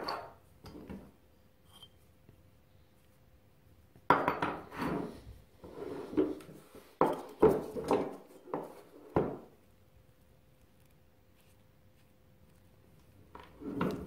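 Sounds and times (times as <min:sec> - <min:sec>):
metal scraping on workbench: 0:04.4 - 0:07.2.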